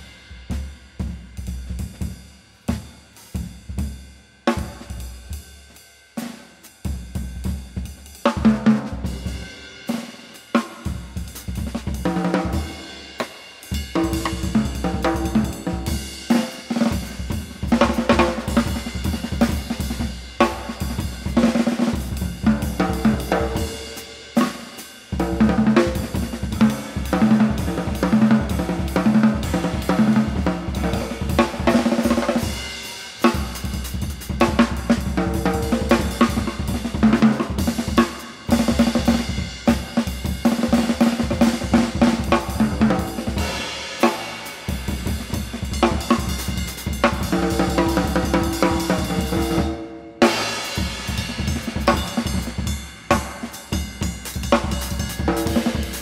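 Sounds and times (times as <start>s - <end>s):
jazz drum kit playing: 0.0s - 56.0s.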